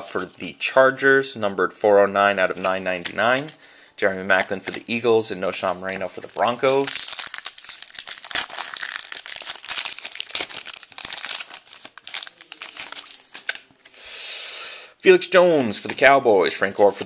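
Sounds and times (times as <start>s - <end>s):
foil wrapper tearing and crinkling: 6.3s - 13.7s.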